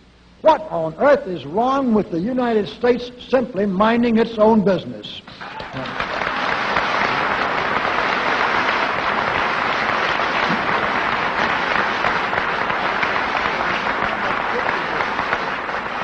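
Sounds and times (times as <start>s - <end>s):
audience applauding: 5.4s - 16.0s.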